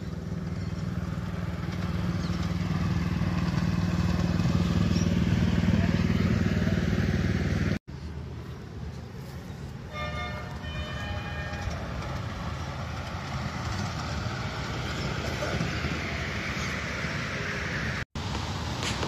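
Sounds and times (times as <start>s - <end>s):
train rolling along track: 0.0s - 19.0s
miniature train horn toot: 9.9s - 12.1s.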